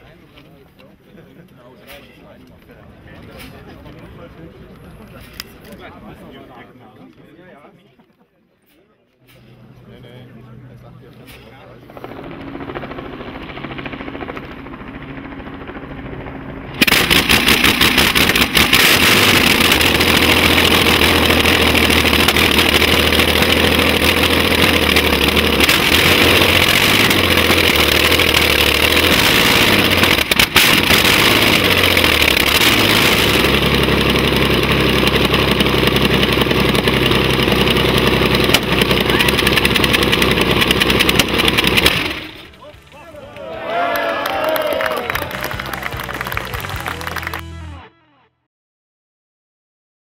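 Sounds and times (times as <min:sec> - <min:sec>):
aircraft engine running loud: 0:10.6 - 0:42.6.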